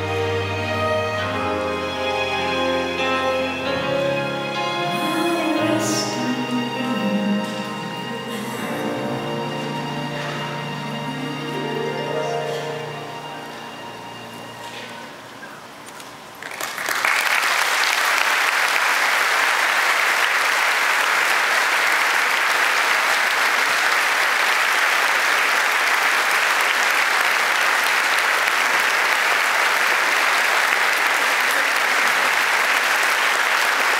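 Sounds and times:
music note: 0:00.0 - 0:15.1
congregation applauding: 0:14.7 - 0:33.9.

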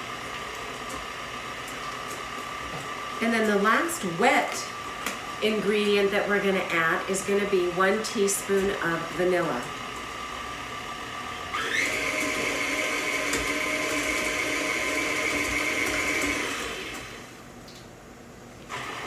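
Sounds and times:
stand mixer whirring: 0:09.8 - 0:17.4, 0:18.7 - 0:19.0.

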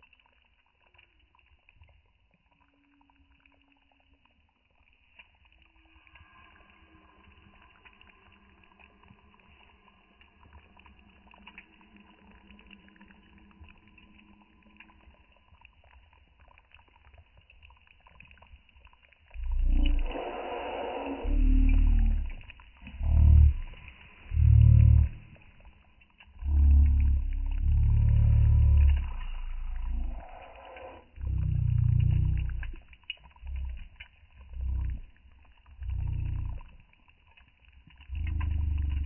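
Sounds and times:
stew bubbling in a pot: 0:00.0 - 0:39.0
faint steady hum: 0:19.3 - 0:36.9
campfire pops and crackles: 0:31.2 - 0:39.0.

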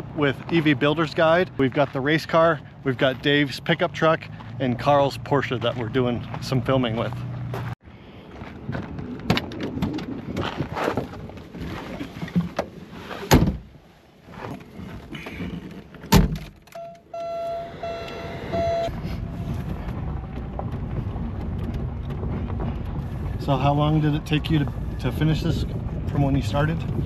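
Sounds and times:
car door slamming: 0:13.3 - 0:13.7, 0:16.1 - 0:16.6
electronic beeps from car: 0:16.8 - 0:19.1.

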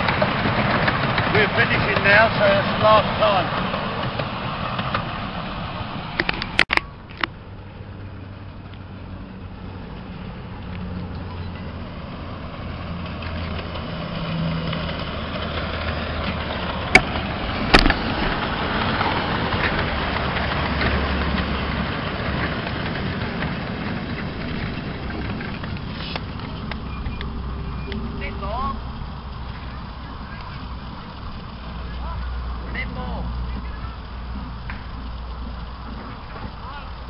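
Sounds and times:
steam locomotives passing: 0:00.0 - 0:37.0
sharp knocks: 0:16.9 - 0:18.4.

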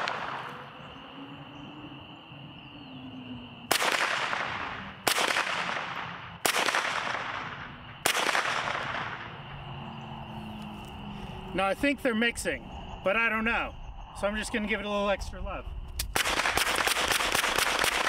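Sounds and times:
rifle shots echoing: 0:03.7 - 0:09.3, 0:16.1 - 0:18.0.

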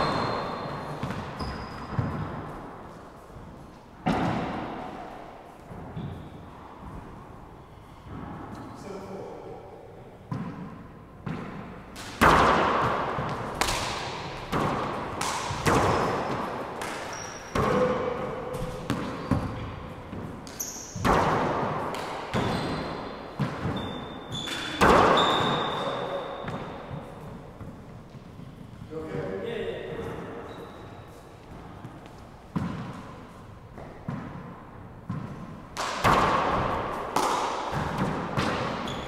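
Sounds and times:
shoes squeaking on hardwood: 0:00.0 - 0:02.3
rubber ball hitting walls with echo: 0:00.0 - 0:02.8, 0:04.0 - 0:07.1, 0:10.2 - 0:28.7, 0:31.8 - 0:39.0
gloved hands striking ball: 0:11.3 - 0:17.8, 0:35.1 - 0:38.9.

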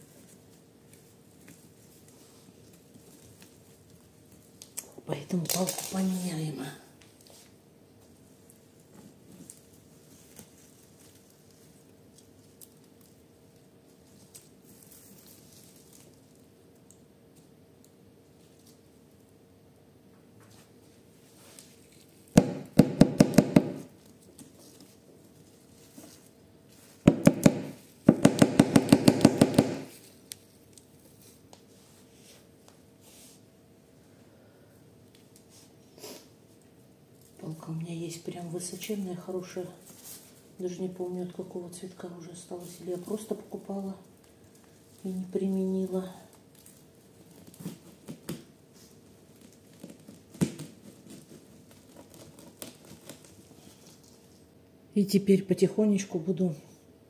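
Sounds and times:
rustling stems and leaves: 0:00.0 - 0:06.6, 0:08.4 - 0:19.3, 0:37.1 - 0:48.0
pole knocking: 0:22.4 - 0:23.9, 0:27.1 - 0:29.9.

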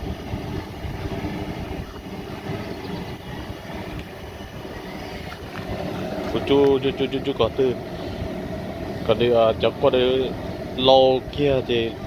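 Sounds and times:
burner running: 0:00.0 - 0:12.0
pot boiling hard: 0:00.0 - 0:12.0.

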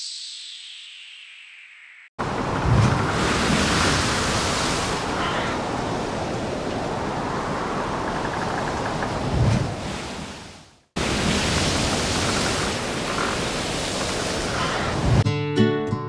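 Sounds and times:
ocean surf rushing: 0:02.2 - 0:15.2.

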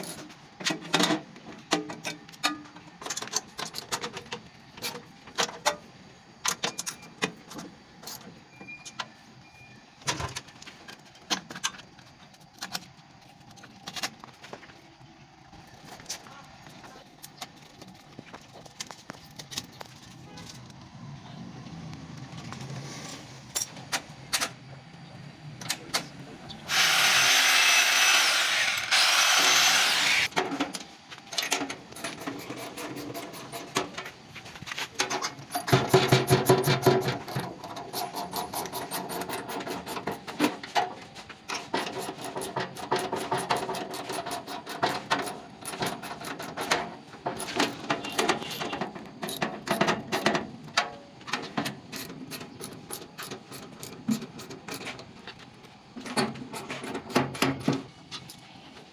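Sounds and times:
power drill running: 0:26.7 - 0:30.3.

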